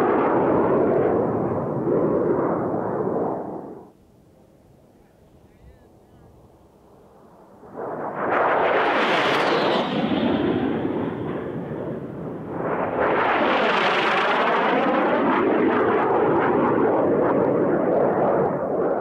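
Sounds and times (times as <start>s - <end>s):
jet engine roar: 0.0s - 19.0s
jet flyby overhead: 0.0s - 19.0s.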